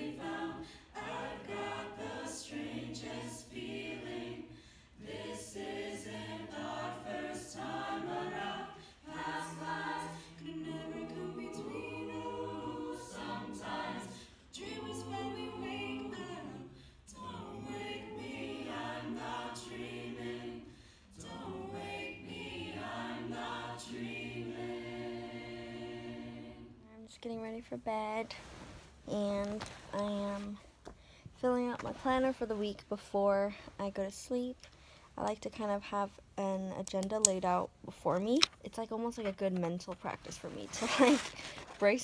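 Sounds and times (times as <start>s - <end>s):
a cappella choir singing: 0.0s - 26.9s.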